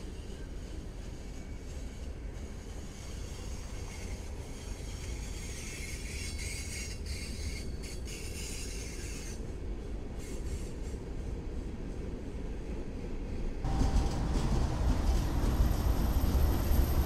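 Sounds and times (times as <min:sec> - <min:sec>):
steel wheels squealing on rail: 0:00.0 - 0:11.4, 0:13.7 - 0:17.0
freight train rumble: 0:00.0 - 0:17.0.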